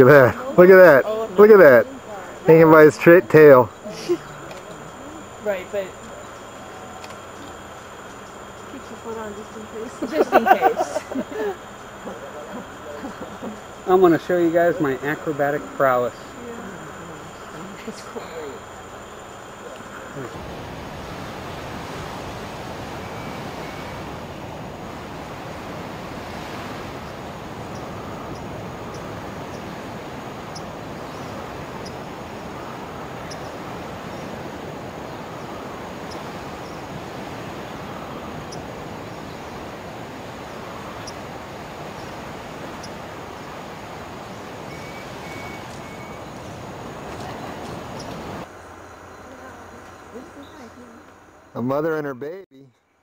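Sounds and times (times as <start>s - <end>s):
rushing background noise: 0.0s - 52.4s
faint high ticks: 4.4s - 5.0s, 7.0s - 8.8s.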